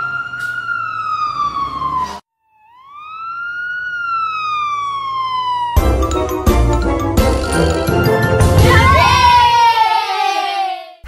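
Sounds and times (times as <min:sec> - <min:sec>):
siren wailing: 0:00.0 - 0:07.0.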